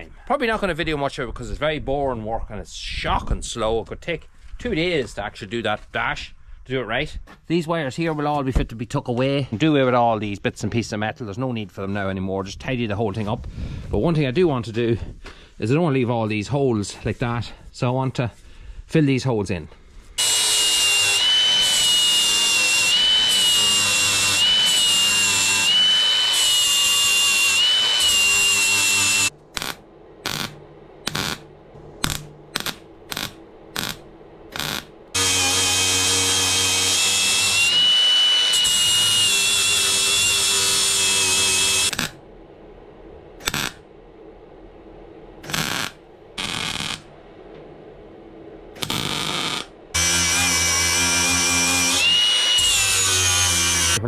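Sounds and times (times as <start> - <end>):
angle grinder grinding steel: 20.2 - 31.4, 32.0 - 42.2, 43.4 - 43.8, 45.4 - 47.0, 48.8 - 54.0
arc welding bursts: 20.2 - 42.2, 43.4 - 43.8, 45.4 - 47.1, 48.8 - 54.0.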